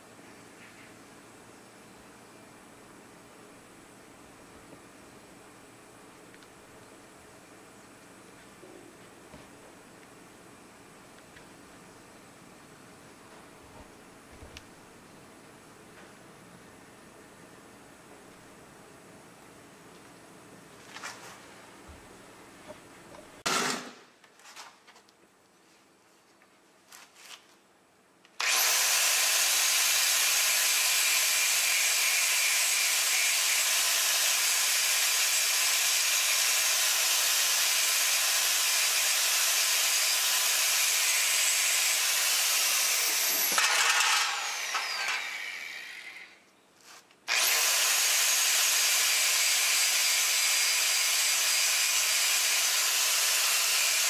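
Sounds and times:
angle grinder cutting steel: 0:28.4 - 0:46.4, 0:47.3 - 0:54.0.

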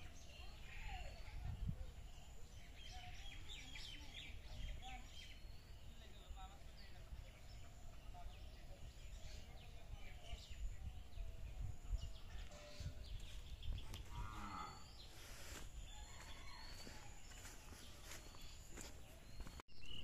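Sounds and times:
wind rumbling on microphone: 0:00.0 - 0:05.5, 0:06.7 - 0:17.1
bird chirps: 0:00.0 - 0:20.0.

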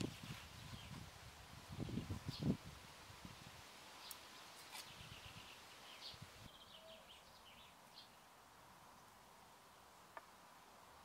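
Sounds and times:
faint bird chirps: 0:04.0 - 0:08.3.

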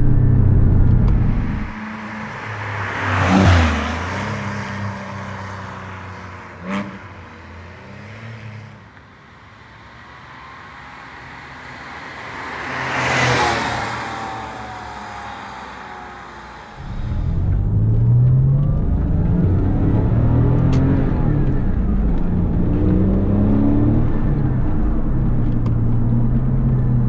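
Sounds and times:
sports car driving past: 0:12.3 - 0:27.0.

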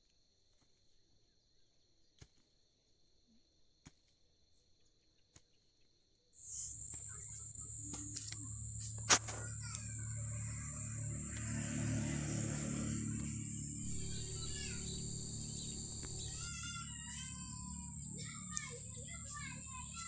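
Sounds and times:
insects chirring: 0:06.4 - 0:20.0
low hum with high whine: 0:06.4 - 0:20.0.

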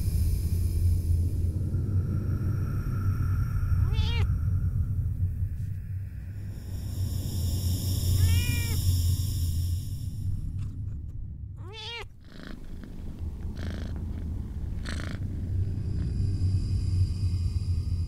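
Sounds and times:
cat meowing: 0:03.8 - 0:04.3, 0:08.2 - 0:08.8, 0:11.6 - 0:12.1
cat purring: 0:03.8 - 0:04.3, 0:07.9 - 0:08.8, 0:10.6 - 0:16.9.

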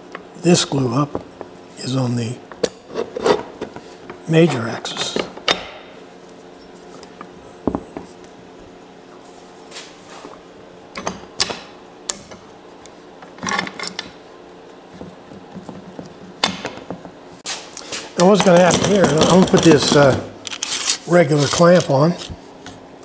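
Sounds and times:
metal clamps clicking and knocking: 0:18.2 - 0:20.6.

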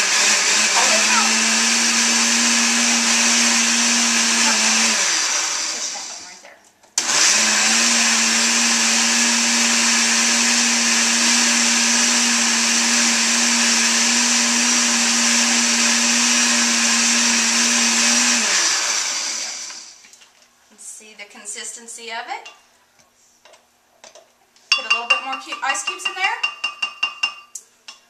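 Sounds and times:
blender running: 0:00.0 - 0:06.4, 0:07.0 - 0:20.0.

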